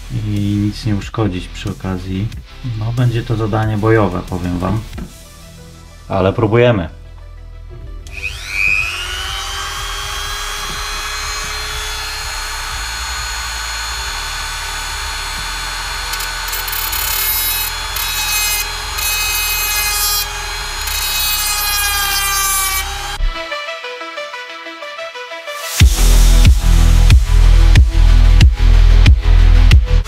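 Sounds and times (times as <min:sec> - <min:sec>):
cut-off disc grinding metal: 0:08.1 - 0:23.4
rotary tool whining: 0:08.1 - 0:23.4.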